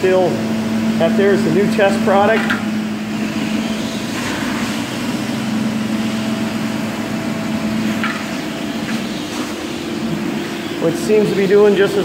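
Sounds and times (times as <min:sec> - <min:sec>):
carpet extraction machine humming: 0:00.0 - 0:12.0
vacuum suction rushing: 0:00.5 - 0:11.2.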